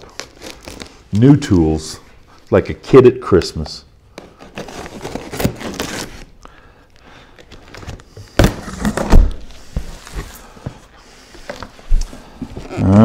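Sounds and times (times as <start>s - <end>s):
cardboard flaps scraping and rustling: 4.4s - 6.3s, 7.7s - 10.4s
cardboard thuds: 8.4s - 10.3s.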